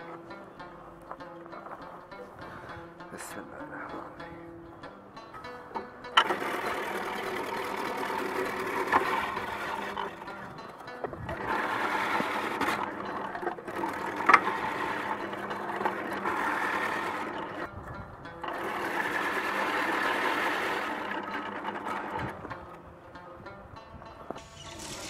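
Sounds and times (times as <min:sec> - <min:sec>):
electric shredder grating carrots: 0:06.2 - 0:10.4, 0:11.3 - 0:17.7, 0:18.5 - 0:22.4, 0:24.4 - 0:25.0.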